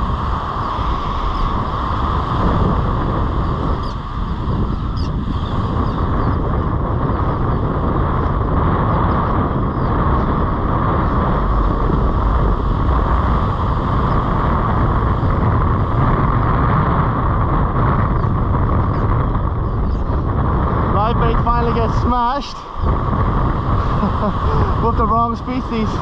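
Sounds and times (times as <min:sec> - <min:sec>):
wind rumble on microphone: 0:00.0 - 0:26.0
small waves washing on beach: 0:21.4 - 0:26.0.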